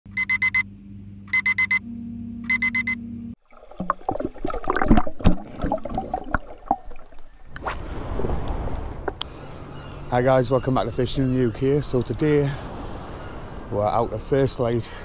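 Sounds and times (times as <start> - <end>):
phone alarm beeping: 0.1 - 0.7, 1.3 - 3.4
low steady hum: 0.1 - 3.4
water splashing and bubbling: 3.4 - 9.3.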